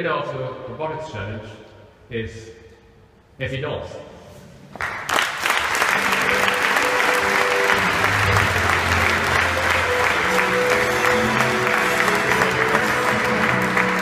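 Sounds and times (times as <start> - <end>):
audience applauding: 4.8 - 14.0
music playing: 5.8 - 14.0.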